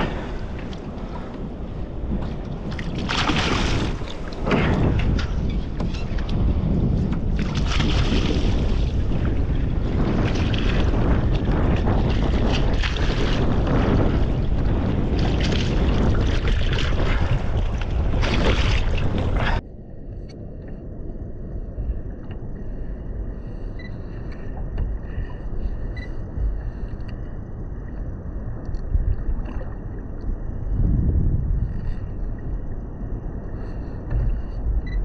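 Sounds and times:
low rush of wind and water: 0.0s - 35.0s
wind buffeting: 0.0s - 35.0s
loud water splashing: 2.7s - 5.2s.

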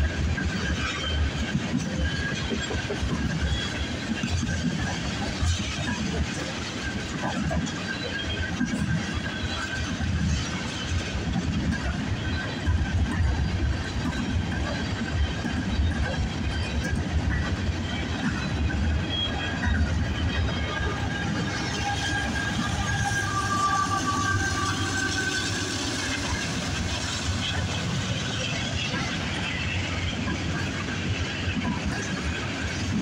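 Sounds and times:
freight train rumbling over rails: 0.0s - 33.0s
high squealing wheels: 0.4s - 33.0s
locomotive passing: 7.6s - 33.0s.

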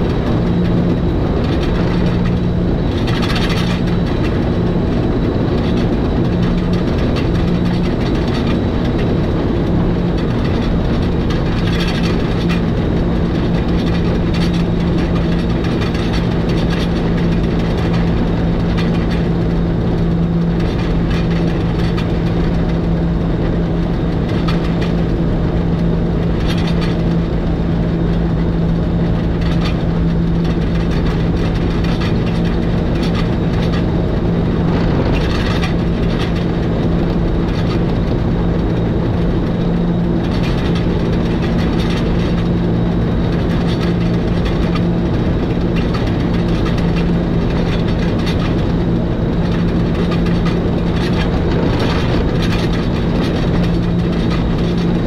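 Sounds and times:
electric train drive hum: 0.0s - 55.0s
low rumble: 28.7s - 39.5s, 49.4s - 55.0s.

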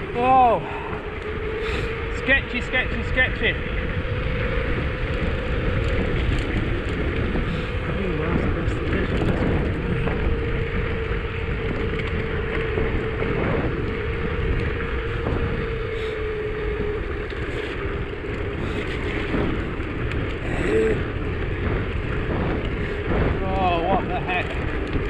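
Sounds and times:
wind on microphone: 0.0s - 25.0s
tyres hissing on wet road: 1.6s - 2.2s.

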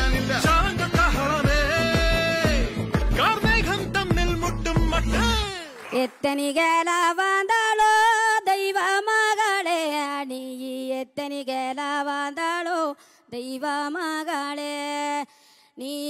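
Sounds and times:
woman singing unaccompanied: 5.2s - 16.0s.

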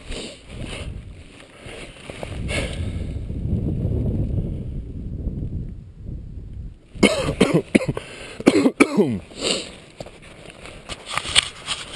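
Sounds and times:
wind and rubbing on microphone: 0.0s - 8.0s, 9.2s - 11.9s
person coughing: 7.0s - 9.2s.

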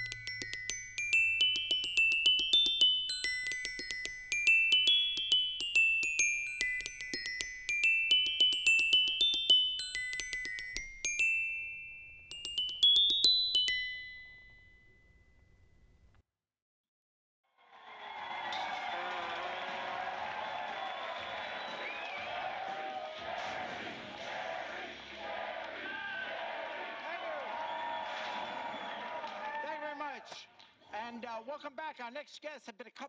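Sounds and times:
tinkling bell-like melody: 0.0s - 16.0s.

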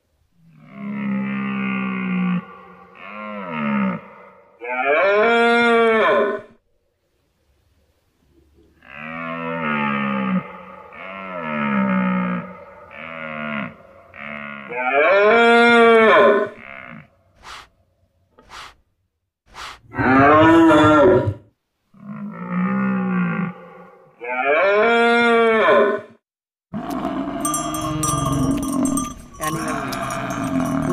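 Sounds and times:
deer bellowing: 26.8s - 30.9s.

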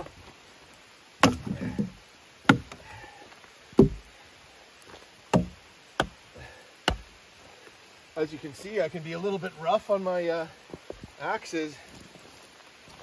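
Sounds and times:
axe chopping wood: 1.2s - 2.8s, 3.8s - 4.0s, 5.3s - 6.2s, 6.9s - 7.1s.

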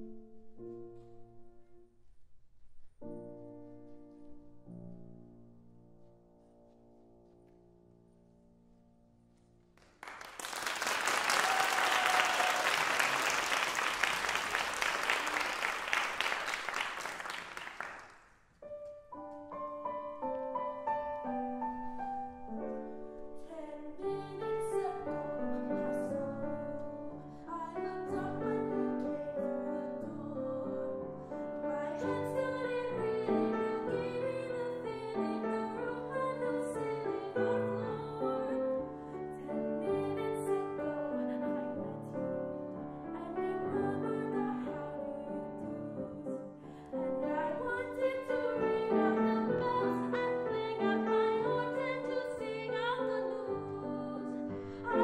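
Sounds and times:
audience applauding: 9.8s - 18.2s
grand piano playing: 18.6s - 55.0s.

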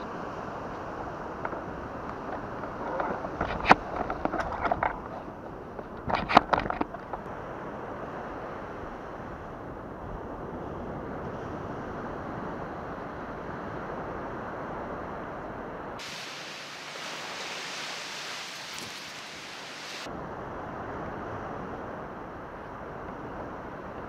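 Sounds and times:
surf: 0.0s - 24.0s
wind: 0.0s - 24.0s
fishing gear clicks and knocks: 1.4s - 7.3s, 18.5s - 19.4s.

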